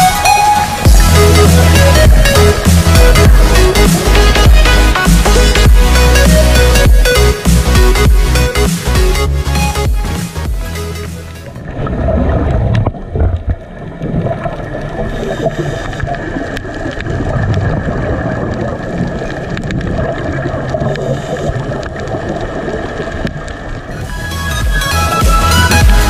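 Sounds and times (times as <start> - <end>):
muffled underwater rush: 0.0 - 7.0, 11.4 - 24.9.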